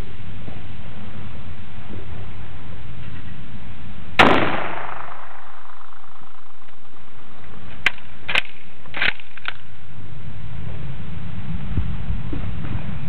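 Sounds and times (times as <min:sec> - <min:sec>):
rifle shot with ringing tail: 0:04.2 - 0:09.2.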